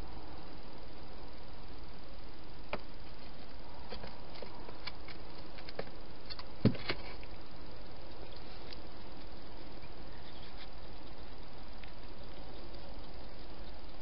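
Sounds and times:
steady hiss: 0.0 - 14.0
hedgehogs eating with crunches: 8.0 - 14.0.

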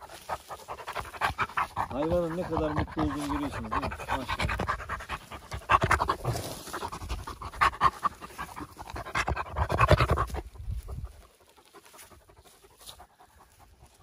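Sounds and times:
dog panting: 0.0 - 14.0.

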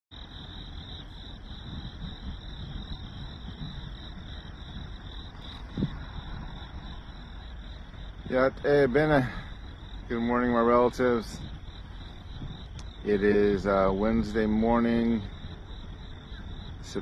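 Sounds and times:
crickets chirping: 0.1 - 17.0
low rumbling background: 0.2 - 17.0.

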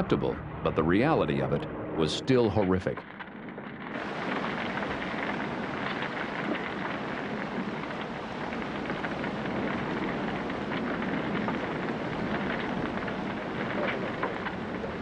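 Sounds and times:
fire crackling: 0.0 - 15.0
fire hoses spraying water: 4.0 - 15.0.

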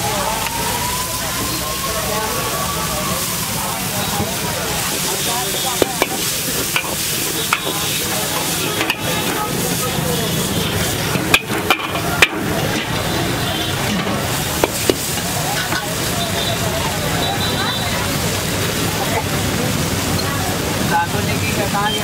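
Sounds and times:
vegetables sizzling in a wok: 0.0 - 22.0
ladle scraping wok: 3.2 - 17.0
ladle clanking against wok: 4.2 - 16.1.

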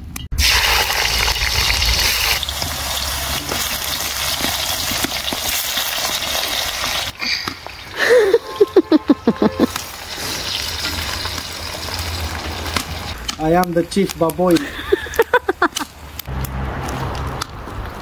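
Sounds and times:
food sizzling in hot oil: 0.4 - 8.7, 9.6 - 13.2.

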